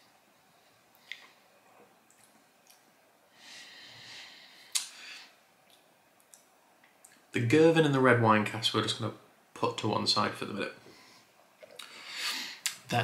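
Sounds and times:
person breathing softly: 0:03.3 - 0:05.4, 0:10.8 - 0:12.7
mouth click: 0:04.7 - 0:05.0.

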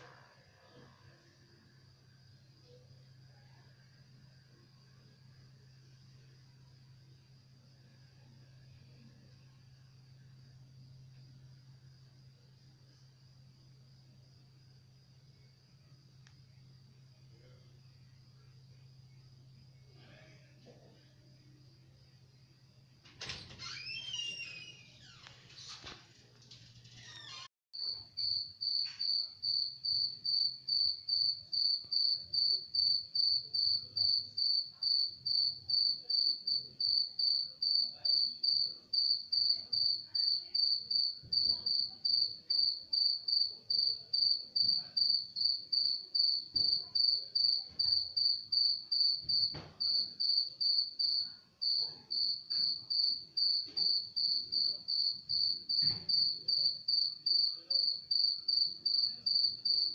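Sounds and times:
insect chirping: 0:27.0 - 0:59.9.

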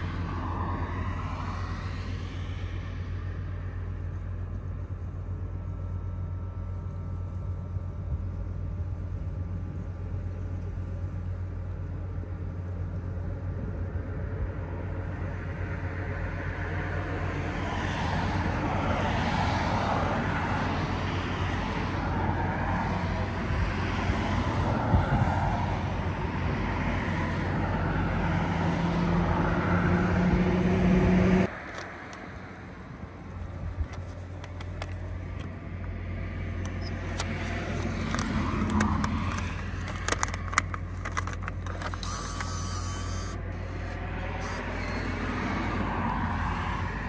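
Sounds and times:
passing vehicle engine: 0:00.0 - 0:04.5, 0:13.6 - 0:33.6, 0:34.4 - 0:47.0
low traffic hum: 0:00.0 - 0:47.0.

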